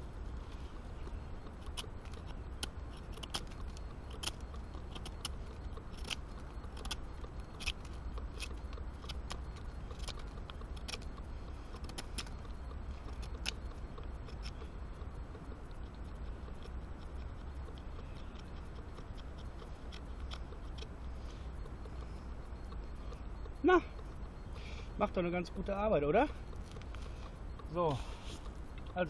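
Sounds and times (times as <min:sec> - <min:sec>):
knife carving wood: 0:00.9 - 0:23.5.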